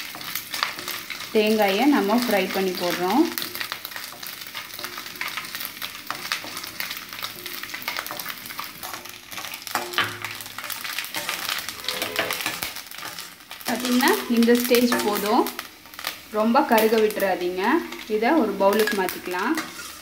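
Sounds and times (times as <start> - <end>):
coconut sizzling in hot fat: 0.0 - 20.0
spatula scraping metal pan: 11.2 - 13.2, 18.8 - 20.0.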